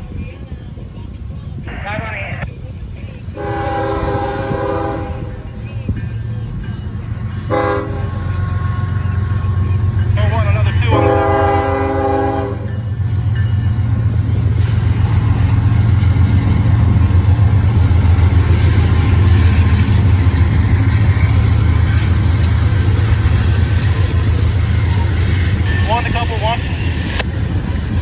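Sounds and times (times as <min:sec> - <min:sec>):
diesel locomotive engine rumble: 0:00.0 - 0:28.0
locomotive horn: 0:03.4 - 0:05.5, 0:07.4 - 0:12.9.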